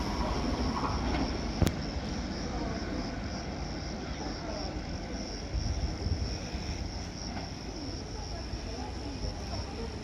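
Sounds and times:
train rumble: 0.0 - 10.0.

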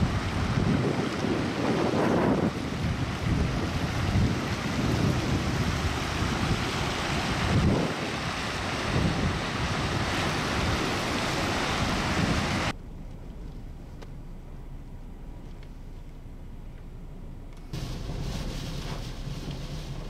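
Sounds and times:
cars driving through water: 0.0 - 12.8, 17.8 - 20.0
wind buffeting microphone: 0.0 - 12.8.

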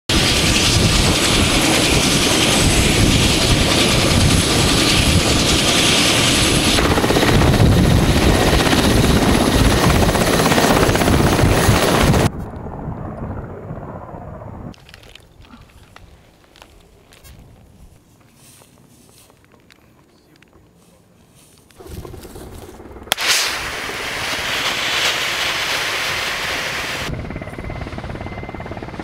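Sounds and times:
helicopter engines and rotor: 0.1 - 14.8, 21.8 - 29.0.

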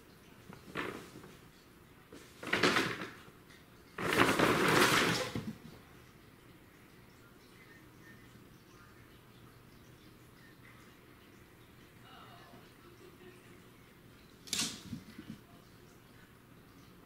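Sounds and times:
paper tunnel rustling and crinkling: 0.4 - 1.4, 2.1 - 3.3, 4.0 - 5.6.

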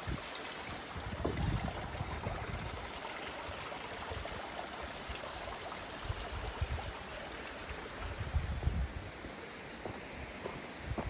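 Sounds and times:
forest creek rushing: 0.0 - 11.0.

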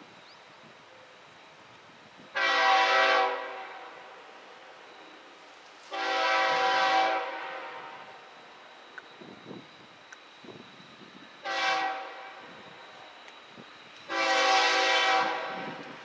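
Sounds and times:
locomotive air horn blasts: 2.3 - 4.2, 5.9 - 8.2, 11.4 - 13.1, 14.1 - 15.8.

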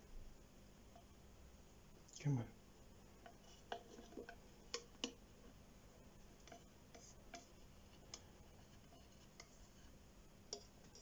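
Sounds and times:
tongs clicking on enclosure: 3.2 - 5.2.

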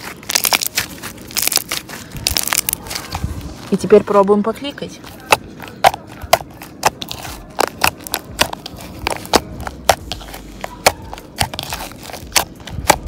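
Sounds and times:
slime popping: 0.0 - 3.2.

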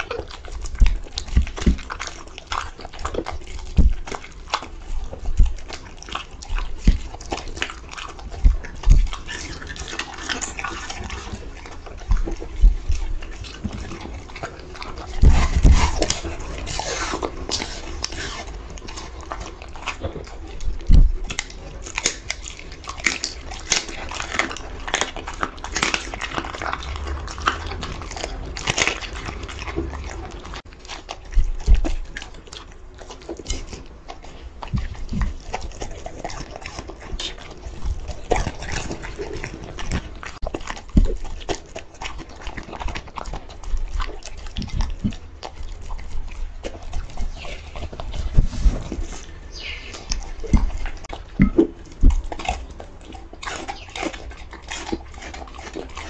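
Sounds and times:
dog chewing and smacking: 0.0 - 56.0
dull thumps: 20.8 - 21.3.

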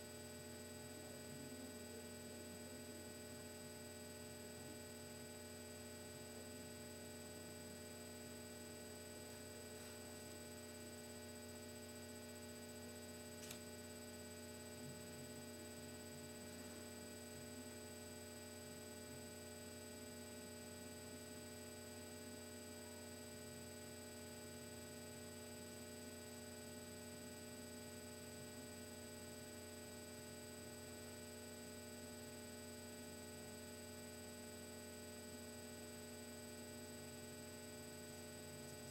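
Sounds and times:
faint electrical hum: 0.0 - 38.9.

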